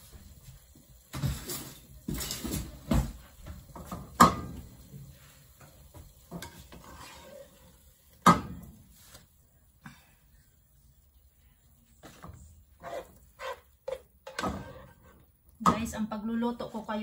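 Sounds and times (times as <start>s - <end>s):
spoon stirring and scraping pot: 3.6s - 9.3s, 11.9s - 16.0s.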